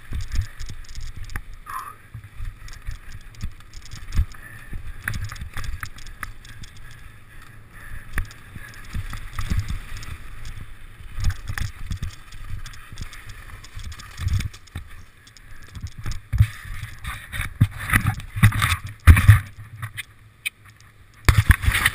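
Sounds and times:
bike knocking and rattling: 0:00.0 - 0:21.9
tyres rumbling over loose stones: 0:08.1 - 0:19.5.

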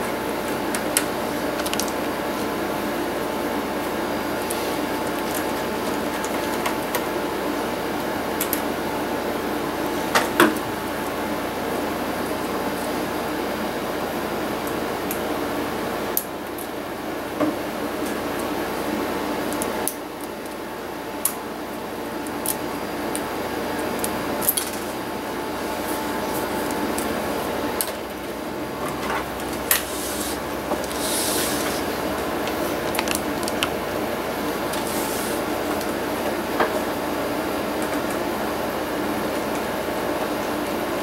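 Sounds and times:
low background hum: 0:00.0 - 0:41.0.

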